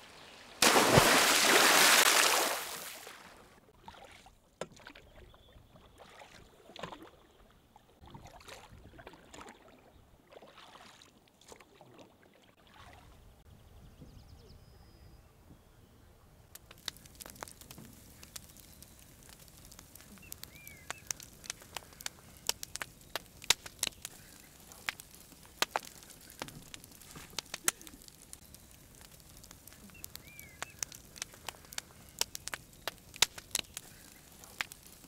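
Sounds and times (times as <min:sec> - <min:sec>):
campfire crackling and popping: 0:00.2 - 0:03.2, 0:16.5 - 0:35.0
bird chirp: 0:13.1 - 0:16.3, 0:20.1 - 0:21.2, 0:29.8 - 0:30.9.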